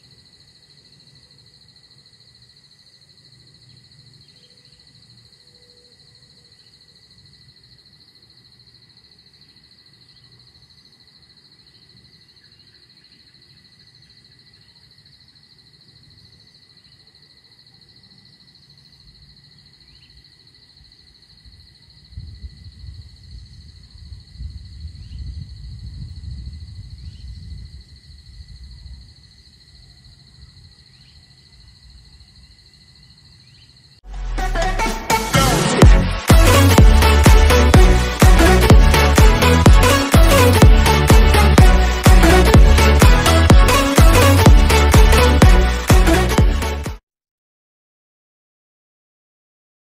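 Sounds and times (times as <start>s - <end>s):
insects trilling: 0.0s - 34.0s
loud electronic music: 34.0s - 47.0s.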